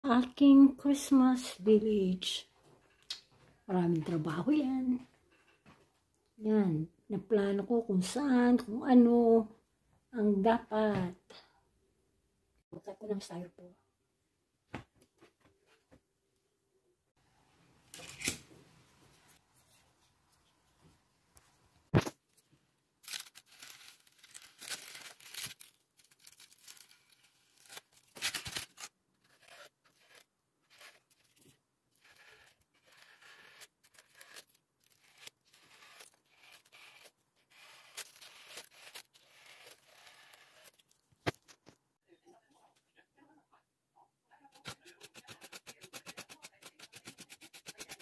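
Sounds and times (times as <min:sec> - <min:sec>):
styrofoam being scraped: 0:28.6 - 0:40.8.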